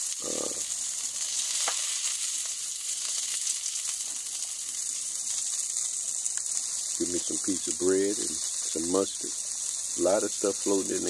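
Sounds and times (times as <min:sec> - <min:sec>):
sausage sizzling on hot steel: 0:00.0 - 0:11.0.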